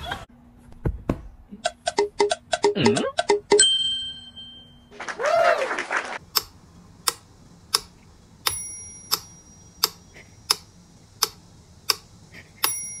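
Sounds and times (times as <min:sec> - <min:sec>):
metronome ticking: 0:01.6 - 0:03.7, 0:06.3 - 0:13.0
metronome bell ringing: 0:03.6 - 0:04.9, 0:08.5 - 0:09.9, 0:12.6 - 0:13.0.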